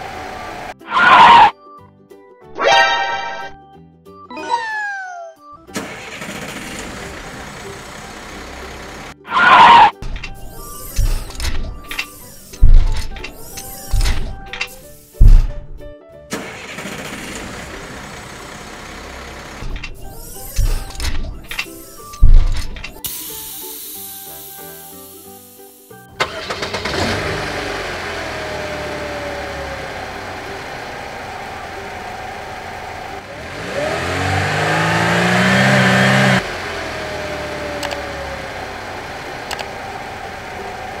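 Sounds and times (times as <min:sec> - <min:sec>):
truck engine revving: 0:05.8 - 0:09.9, 0:16.4 - 0:19.8, 0:26.2 - 0:41.0
thump: 0:12.6 - 0:13.0, 0:15.2 - 0:15.7, 0:22.2 - 0:22.6.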